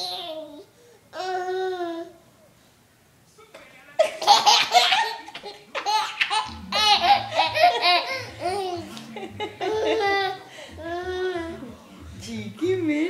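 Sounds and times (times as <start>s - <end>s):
baby laughing: 4.0s - 11.6s.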